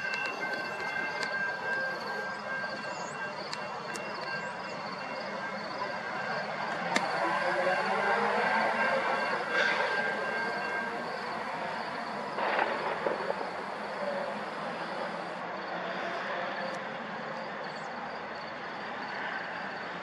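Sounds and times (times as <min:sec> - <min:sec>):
level-crossing bell ringing: 0:00.0 - 0:12.4
train passing on tracks: 0:00.0 - 0:20.0.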